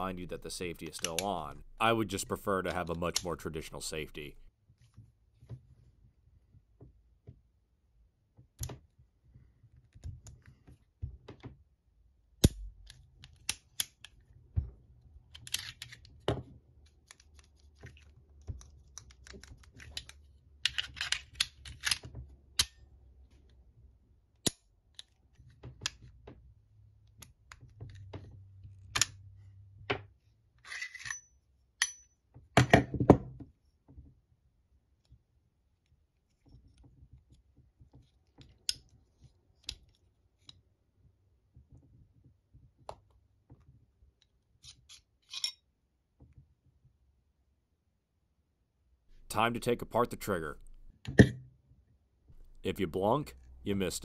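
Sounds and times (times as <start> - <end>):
pistol parts clicking and clacking: 12.4 - 14.3, 15.3 - 16.2, 16.9 - 22.8, 30.6 - 32.1, 44.6 - 45.6.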